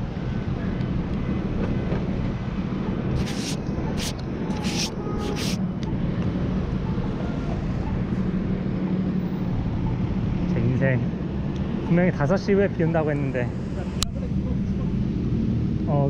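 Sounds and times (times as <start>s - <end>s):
street traffic hum: 0.0s - 16.0s
scratchy rubbing on camera lens: 3.2s - 5.6s.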